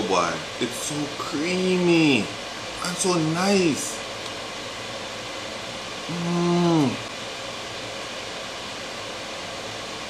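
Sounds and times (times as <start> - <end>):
steady hiss: 0.0 - 10.0
man humming mmm: 6.1 - 7.1.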